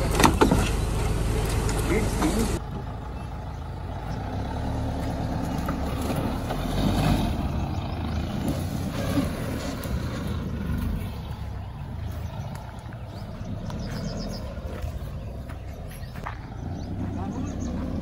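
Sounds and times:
car engine running at low revs: 0:00.0 - 0:18.0.

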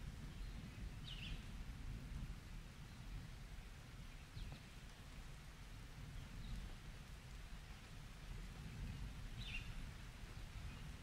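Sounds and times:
rain hiss: 0:00.0 - 0:11.0
bird chirp: 0:00.3 - 0:01.5, 0:08.8 - 0:09.8.

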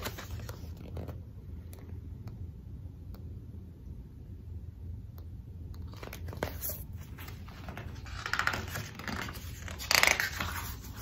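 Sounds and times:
paper rustling and crinkling: 0:00.0 - 0:01.2, 0:05.9 - 0:11.0
page scrapes: 0:06.3 - 0:11.0.

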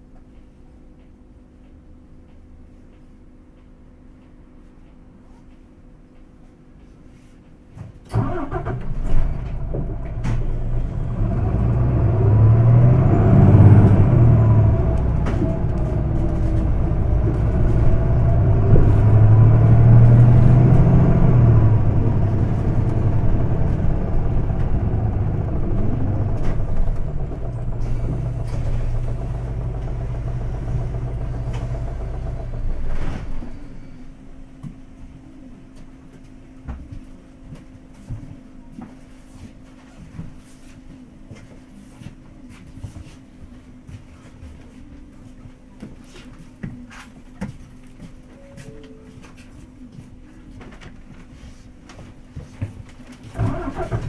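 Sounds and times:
bus diesel engine: 0:08.1 - 0:36.0, 0:51.6 - 0:54.0.

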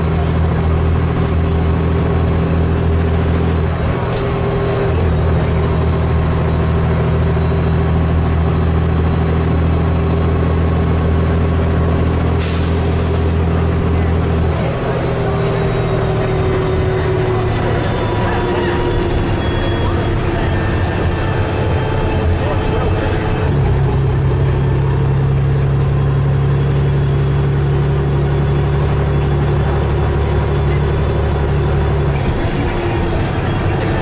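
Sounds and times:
bus diesel engine pulling: 0:00.0 - 0:34.0.

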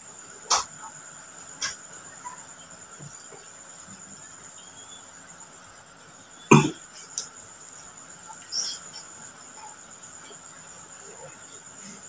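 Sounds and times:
man coughing: 0:06.5 - 0:06.8
mouth noise: 0:06.5 - 0:06.8.

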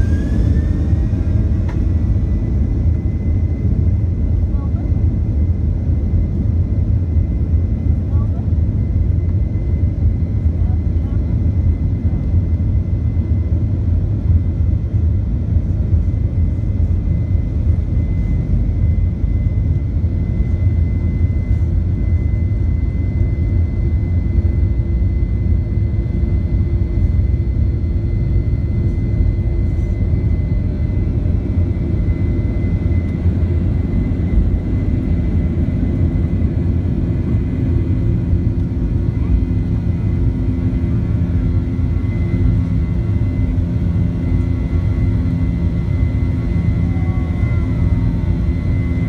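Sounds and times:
low hum: 0:00.0 - 0:11.2, 0:12.0 - 0:49.0
high jet engine whine: 0:00.0 - 0:49.0
jet engine rumble: 0:00.0 - 0:49.0.

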